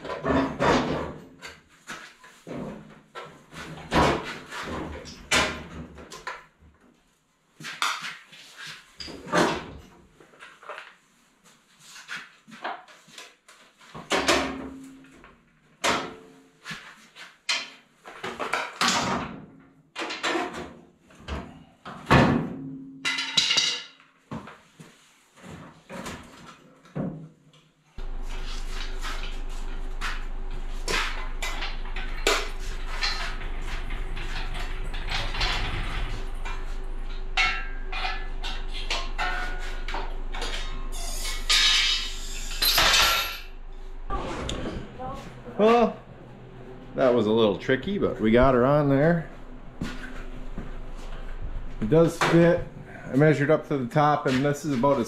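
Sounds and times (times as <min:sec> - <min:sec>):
sharp knocks and bangs: 0:28.0 - 0:46.2
steady hum: 0:28.0 - 0:53.1.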